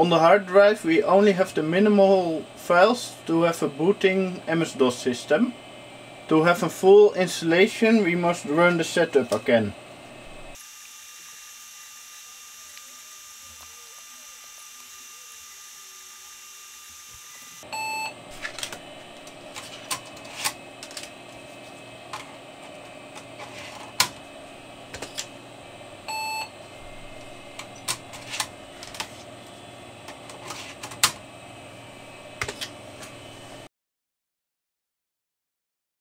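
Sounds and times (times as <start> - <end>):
computer running hum: 0.0 - 33.7
computer speaker beeps: 17.7 - 18.2, 26.1 - 26.5.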